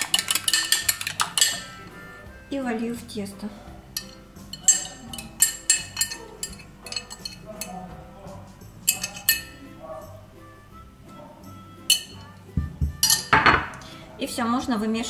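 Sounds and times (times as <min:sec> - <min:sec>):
metal fork clinking on glass: 0:00.0 - 0:01.8, 0:04.0 - 0:07.8, 0:08.8 - 0:09.6, 0:11.9 - 0:12.4, 0:13.0 - 0:13.6.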